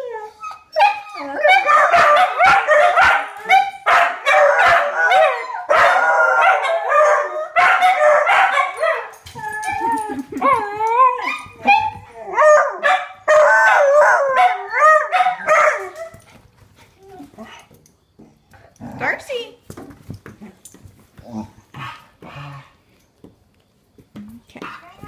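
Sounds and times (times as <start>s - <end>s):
dogs howling in chorus: 0.0s - 16.2s
dogs barking and yipping: 0.0s - 17.8s.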